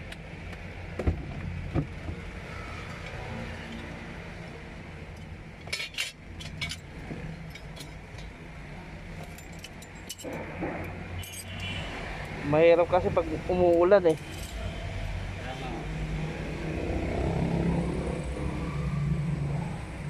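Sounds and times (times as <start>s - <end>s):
metallic clinks of tools: 9.2s - 10.4s, 11.2s - 11.8s, 13.8s - 14.9s.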